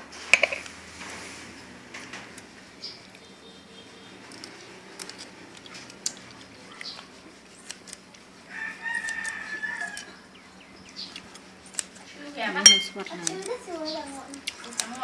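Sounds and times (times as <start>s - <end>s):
rooster crowing: 8.5s - 10.3s.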